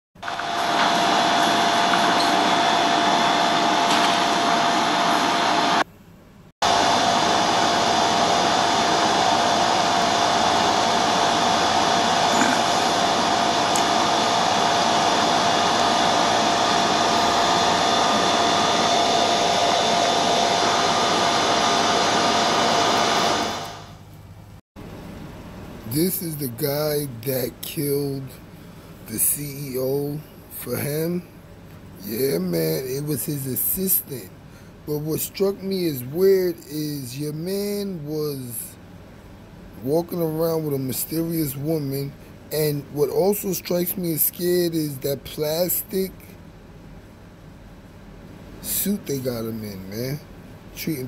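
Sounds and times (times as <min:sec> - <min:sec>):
loud rushing blower noise with whine: 0:00.2 - 0:05.8, 0:06.6 - 0:24.1.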